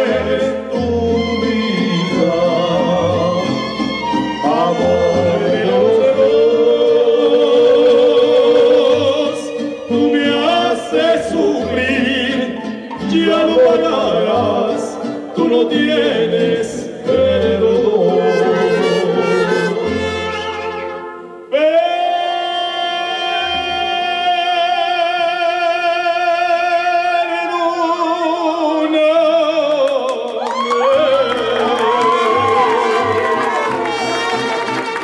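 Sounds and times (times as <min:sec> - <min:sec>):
violins and guitars: 0:00.0 - 0:21.5, 0:31.0 - 0:35.0
man singing with vibrato: 0:00.0 - 0:35.0.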